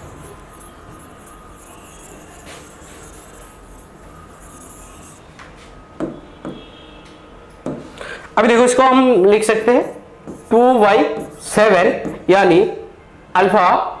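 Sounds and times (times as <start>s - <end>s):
hand rubbing touch screen: 0.0s - 5.2s
faint room hum: 0.0s - 14.0s.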